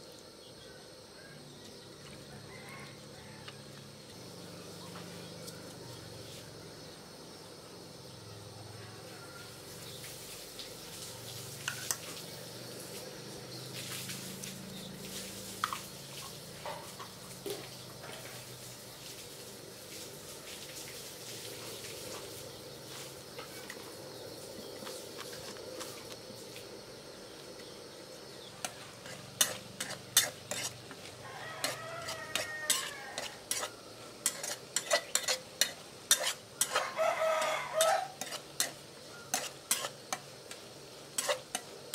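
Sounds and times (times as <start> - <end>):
mole crickets chirping: 0.0 - 41.9
oil sizzling in a wok: 0.0 - 41.9
spatula scraping a pan: 28.6 - 41.9.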